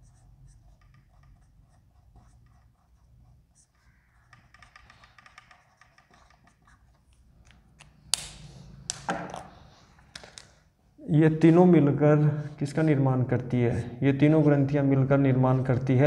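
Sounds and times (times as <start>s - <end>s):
marker squeaking on whiteboard: 0.0s - 7.9s.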